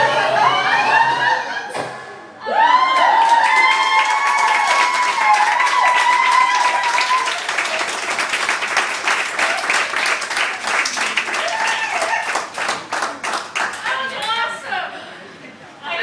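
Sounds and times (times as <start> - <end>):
people applauding: 2.8 - 14.5.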